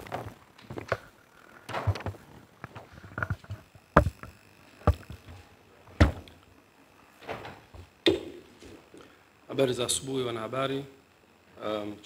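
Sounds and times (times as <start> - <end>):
microphones knocking on table: 4.8 - 5.2.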